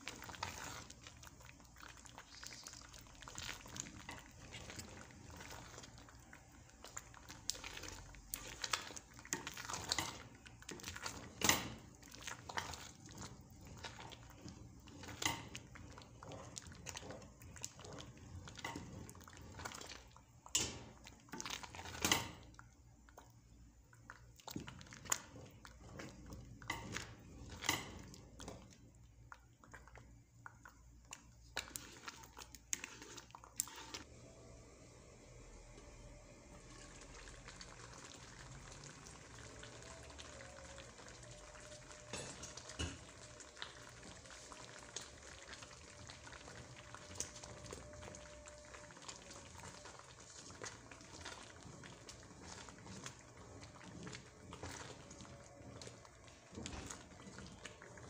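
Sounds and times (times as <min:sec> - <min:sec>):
wooden spoon scraping pot: 0:00.0 - 0:06.1, 0:06.8 - 0:22.5, 0:24.5 - 0:28.8, 0:31.6 - 0:34.1.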